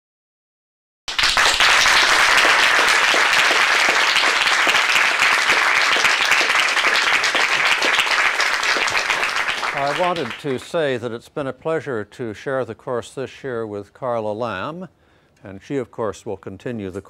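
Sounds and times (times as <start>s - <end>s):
audience applauding: 1.1s - 10.8s.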